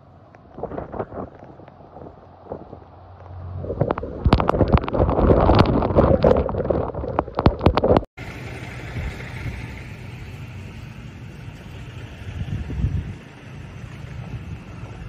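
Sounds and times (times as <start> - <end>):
low rumble: 0.1 - 15.0
wind rushing over microphone: 0.4 - 8.1, 11.9 - 15.0.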